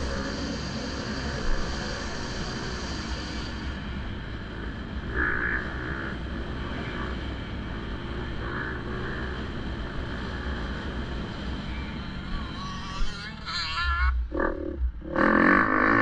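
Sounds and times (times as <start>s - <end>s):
dirt bike engine revving: 14.2s - 16.0s.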